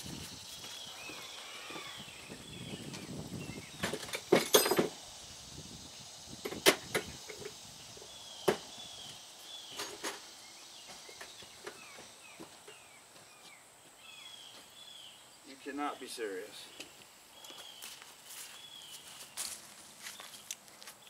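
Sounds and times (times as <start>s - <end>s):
hand tools clanking on metal: 3.9s - 5.0s.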